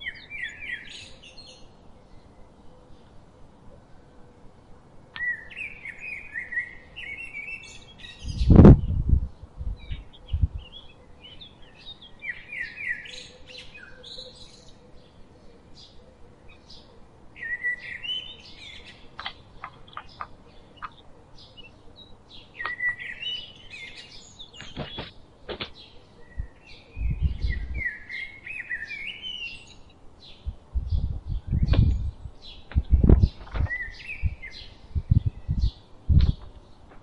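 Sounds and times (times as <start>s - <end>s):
songbirds chirping: 0.0s - 37.0s
wingbeats: 19.0s - 21.1s
crow pecking on wooden board: 19.1s - 21.0s.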